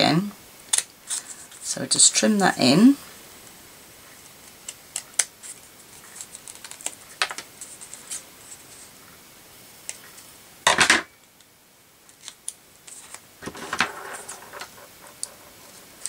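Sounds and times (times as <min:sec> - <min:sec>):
paper handling: 0:12.1 - 0:16.0.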